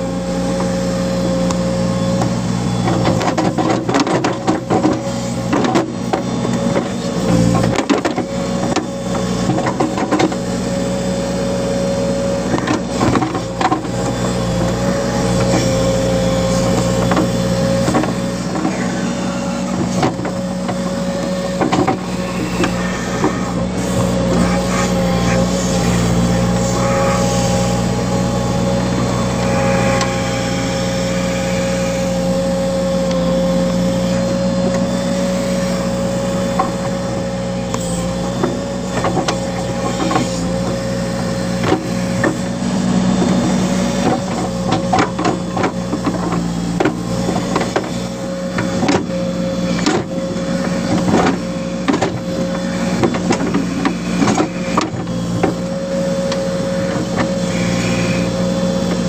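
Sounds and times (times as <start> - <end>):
diesel engine running under load: 0.0 - 59.0
engine whine: 0.0 - 59.0.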